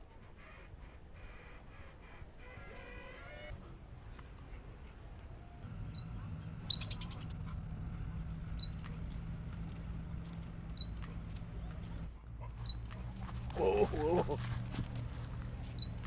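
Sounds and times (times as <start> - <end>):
low steady rumble: 0.0 - 16.0
squirrel alarm chirps: 5.9 - 7.4, 8.6 - 8.9, 10.7 - 11.1, 12.6 - 12.9, 15.8 - 16.0.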